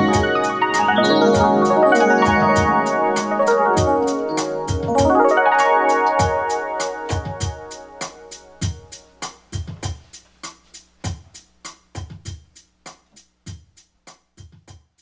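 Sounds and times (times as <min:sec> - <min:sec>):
keyboard chords: 0:00.0 - 0:09.7
electronic drum beat: 0:00.0 - 0:15.0.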